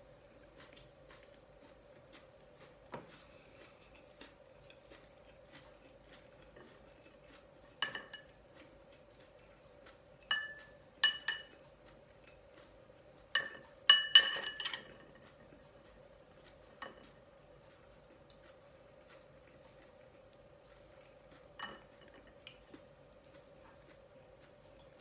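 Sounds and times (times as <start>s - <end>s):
spoon clinking on glass bowl: 7.8s - 8.3s, 10.3s - 11.6s, 13.4s - 15.2s.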